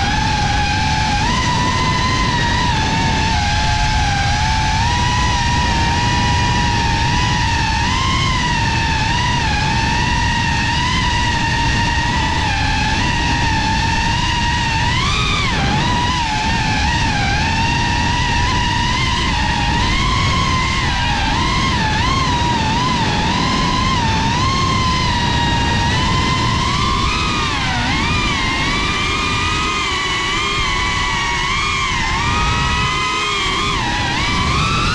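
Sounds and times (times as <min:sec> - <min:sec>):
drone motors whining: 0:00.0 - 0:34.9
wind rush: 0:00.0 - 0:34.9.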